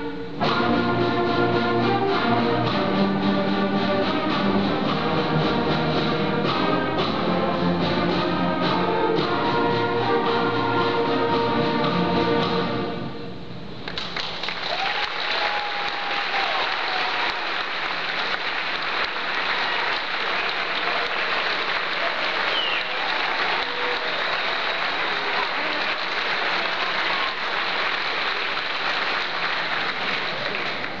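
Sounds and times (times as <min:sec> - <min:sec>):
audience applauding: 0:13.8 - 0:31.0.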